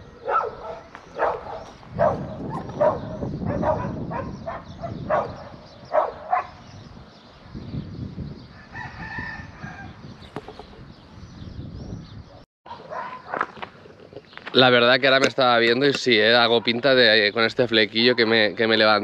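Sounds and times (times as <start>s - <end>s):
wind rumbling on microphone: 0.0s - 12.4s.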